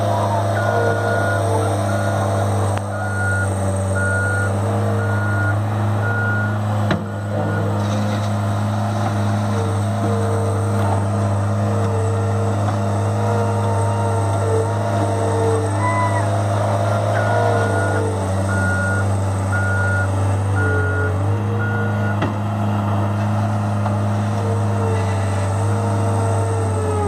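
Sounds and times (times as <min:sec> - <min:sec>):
diesel engine running under load: 0:00.0 - 0:27.0
reversing alarm beeps: 0:00.5 - 0:02.2, 0:02.9 - 0:07.7, 0:17.1 - 0:22.2.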